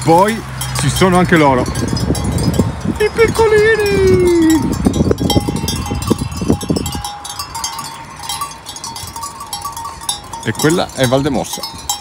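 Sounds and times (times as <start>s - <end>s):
livestock bells clinking: 0.0s - 12.0s.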